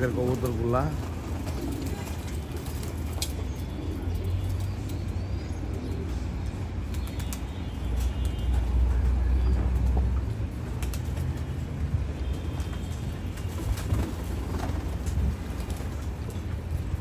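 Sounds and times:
pigeons cooing: 0:00.0 - 0:10.0
pigeon wing flaps: 0:00.9 - 0:03.4, 0:10.6 - 0:11.6, 0:12.4 - 0:16.4.

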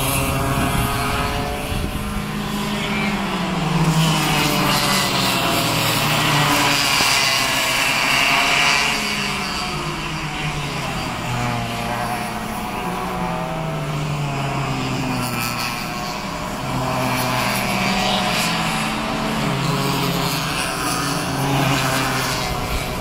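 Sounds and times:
kart engines buzzing: 0:00.0 - 0:23.0.

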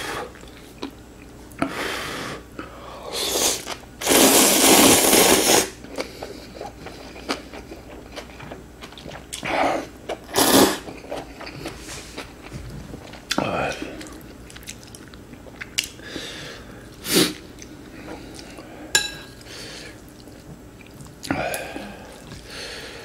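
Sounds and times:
person slurping noodles: 0:03.1 - 0:05.7, 0:09.4 - 0:10.9.

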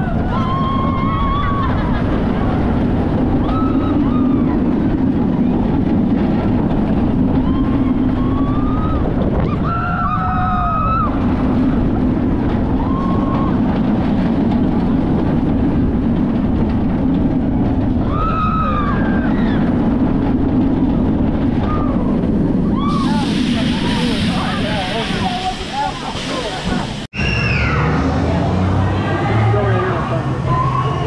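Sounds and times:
people crying out: 0:00.0 - 0:02.2
wind buffeting microphone: 0:00.0 - 0:26.0
ride vehicle rumbling: 0:00.0 - 0:31.0.

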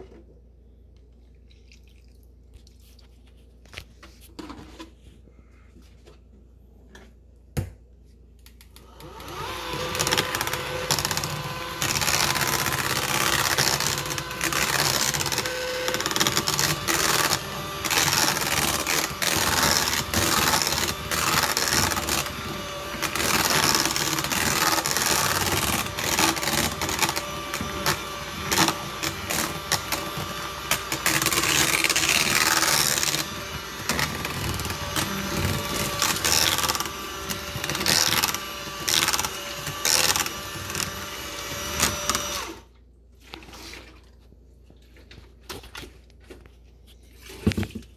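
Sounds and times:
hand mixer running: 0:08.8 - 0:42.7.

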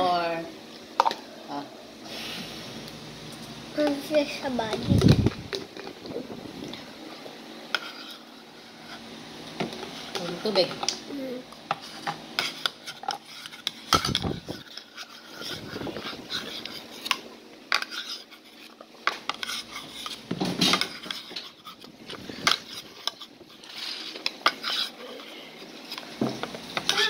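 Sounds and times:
spoon scraping ceramic bowl: 0:17.8 - 0:26.0.

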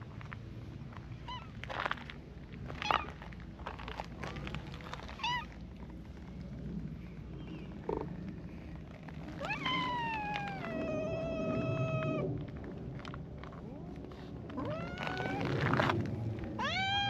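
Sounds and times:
cat meowing: 0:09.4 - 0:12.2, 0:14.6 - 0:15.7, 0:16.6 - 0:17.0.

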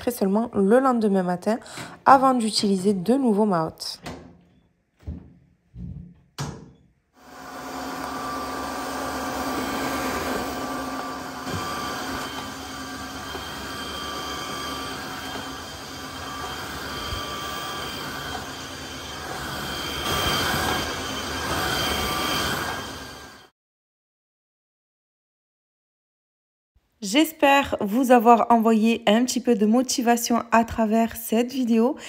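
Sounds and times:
floor cleaner motor whirring: 0:07.2 - 0:23.5.

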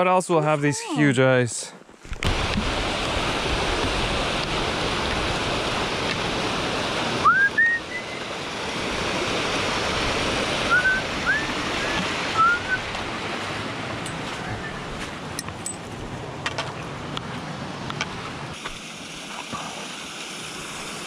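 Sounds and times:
water rushing over a dam: 0:02.2 - 0:15.0.

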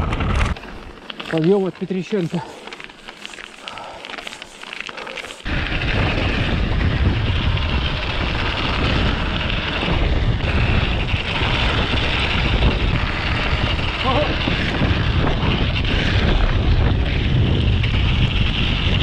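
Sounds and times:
wind rushing on microphone: 0:00.0 - 0:00.6, 0:05.4 - 0:19.0
bike tyres crunching on snow: 0:00.0 - 0:19.0
rumbling tyre noise: 0:00.0 - 0:19.0.

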